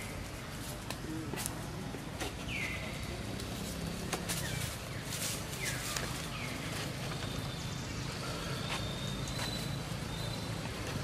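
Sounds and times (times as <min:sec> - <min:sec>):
outdoor background: 0:00.0 - 0:11.0.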